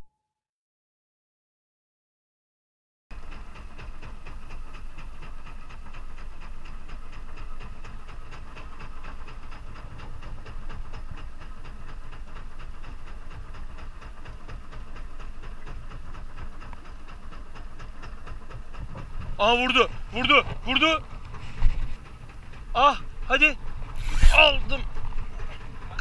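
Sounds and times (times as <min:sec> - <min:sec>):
boat motor running slowly: 0:03.1 - 0:26.0
water and wind rushing: 0:07.1 - 0:26.0.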